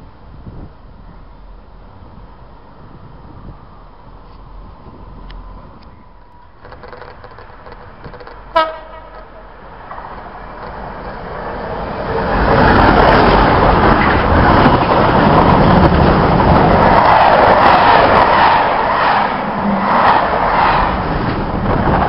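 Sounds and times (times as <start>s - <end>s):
diesel locomotive engine: 0.0s - 22.0s
locomotive horn toot: 8.5s - 9.5s.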